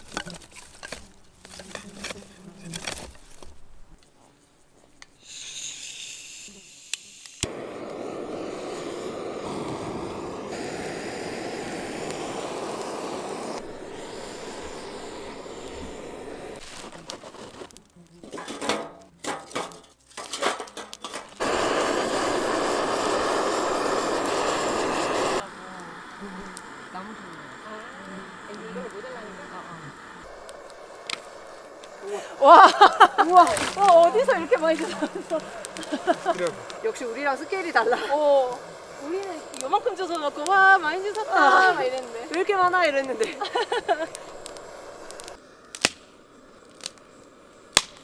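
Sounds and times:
gas torch hissing: 0:04.9 - 0:18.9, 0:20.4 - 0:48.0
torch lighter click: 0:05.2 - 0:17.2, 0:21.4 - 0:32.1, 0:42.0 - 0:46.0
twigs snapping: 0:30.4 - 0:32.0, 0:42.0 - 0:46.1, 0:46.7 - 0:47.0, 0:47.7 - 0:48.0.

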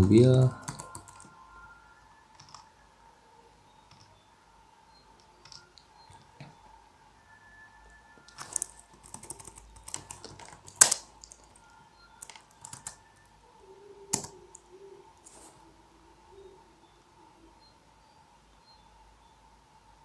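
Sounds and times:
computer keyboard typing: 0:00.0 - 0:01.4, 0:02.3 - 0:02.7, 0:03.8 - 0:04.2, 0:05.2 - 0:06.6, 0:08.3 - 0:13.3, 0:14.1 - 0:15.4.

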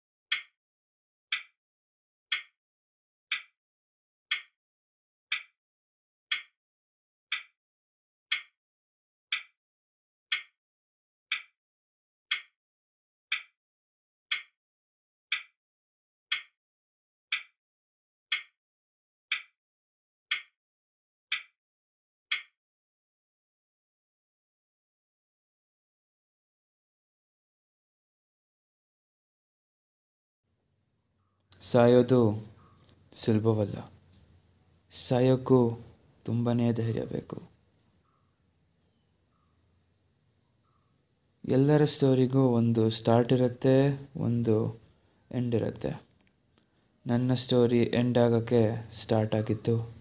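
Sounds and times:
clock ticking: 0:00.3 - 0:00.6, 0:01.3 - 0:01.5, 0:02.3 - 0:02.6, 0:03.3 - 0:03.5, 0:04.3 - 0:04.5, 0:05.3 - 0:05.5, 0:06.3 - 0:06.6, 0:07.3 - 0:07.5, 0:08.3 - 0:08.6, 0:09.3 - 0:09.5, 0:10.3 - 0:10.6, 0:11.3 - 0:11.5, 0:12.3 - 0:12.5, 0:13.3 - 0:13.5, 0:14.3 - 0:14.6, 0:15.3 - 0:15.5, 0:16.3 - 0:16.6, 0:17.3 - 0:17.5, 0:18.3 - 0:18.6, 0:19.3 - 0:19.5, 0:20.3 - 0:20.6, 0:21.3 - 0:21.5, 0:22.3 - 0:22.6.

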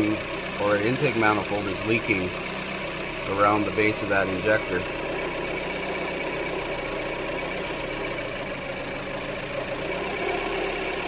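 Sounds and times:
car engine idling with misfire: 0:00.0 - 0:11.0.

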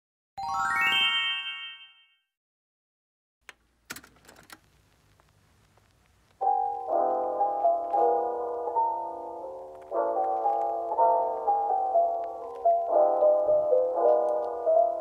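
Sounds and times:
rising bell-like chime: 0:00.4 - 0:02.2
plastic crinkling: 0:09.6 - 0:15.0.

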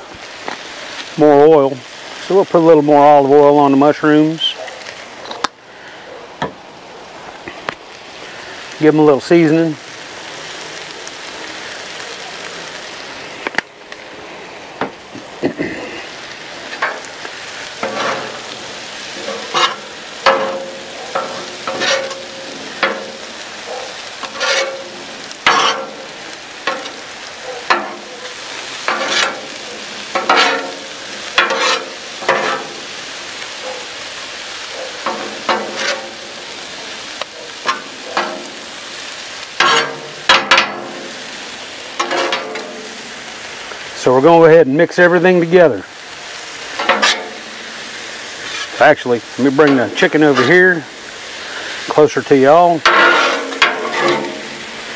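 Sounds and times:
mushrooms sizzling in oil: 0:00.0 - 0:54.9
metal spatula scraping a griddle: 0:16.0 - 0:43.8, 0:46.2 - 0:54.9.

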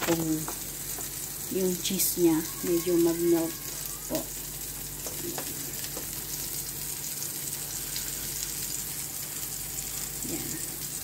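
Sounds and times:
food sizzling on grill: 0:00.0 - 0:11.0
faint taps on grill plate: 0:05.0 - 0:06.2.

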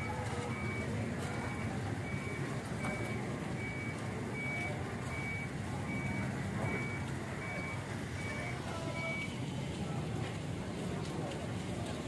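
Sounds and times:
reversing alarm beeping: 0:00.0 - 0:09.4.

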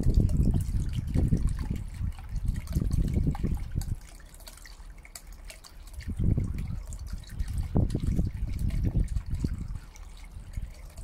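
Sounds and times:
fountain pump water splashing: 0:00.0 - 0:11.0.

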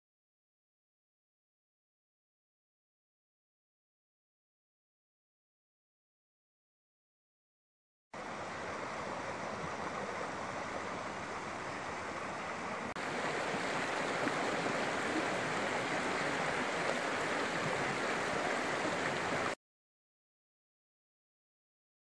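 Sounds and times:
creek rushing over rocks: 0:08.2 - 0:19.6.

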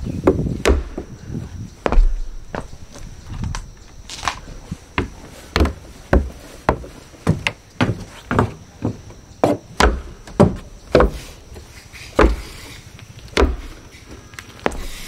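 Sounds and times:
footsteps on railway track: 0:00.2 - 0:11.4.

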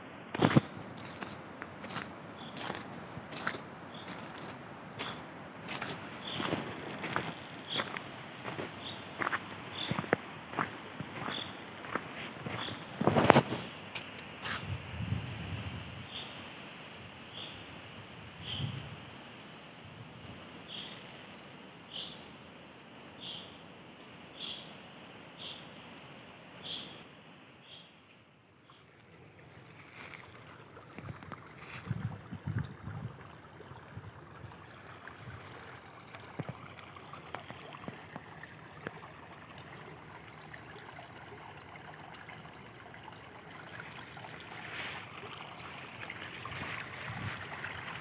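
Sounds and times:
stream trickling: 0:00.3 - 0:17.5, 0:27.5 - 0:48.0.

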